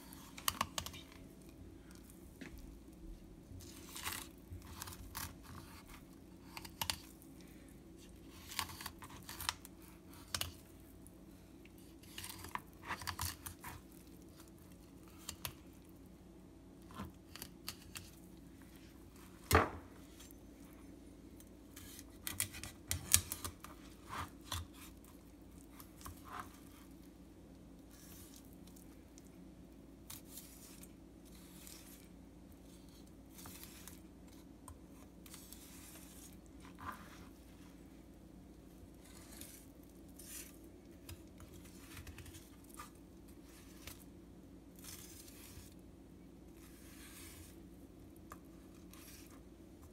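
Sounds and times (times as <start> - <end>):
faint steady hum: 0.0 - 49.9
knife scraping and crunching fish bones: 3.6 - 7.4, 8.0 - 10.7, 11.7 - 15.7, 16.9 - 18.2, 21.3 - 27.0, 38.9 - 44.1, 44.7 - 45.8.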